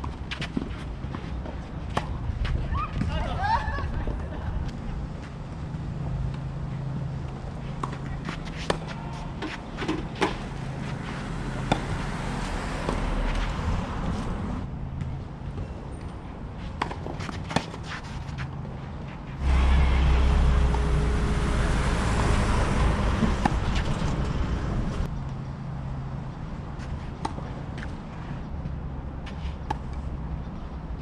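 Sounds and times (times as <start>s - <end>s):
tennis ball hits: 11.5s - 12.2s.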